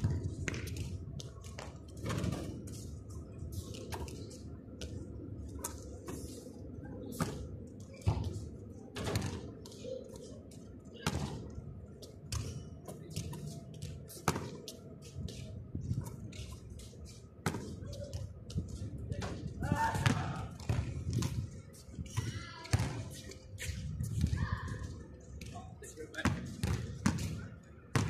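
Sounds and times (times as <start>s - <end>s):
low background noise: 0.0s - 28.0s
basketball bouncing on concrete: 26.3s - 28.0s.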